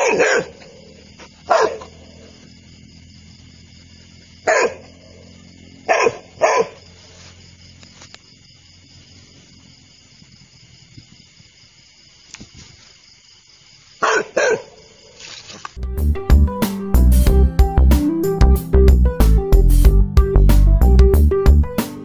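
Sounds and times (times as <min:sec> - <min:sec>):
dog barking: 0:00.0 - 0:02.2, 0:04.4 - 0:06.9, 0:14.0 - 0:15.2.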